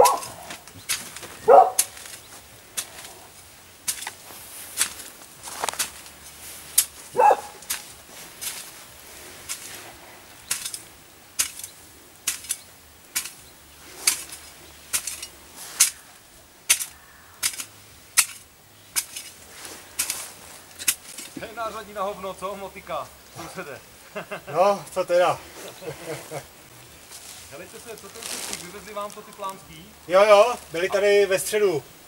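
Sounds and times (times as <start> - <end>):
hoe chopping into soil: 0.0 - 3.2, 3.8 - 8.8, 9.4 - 16.1, 16.7 - 21.6.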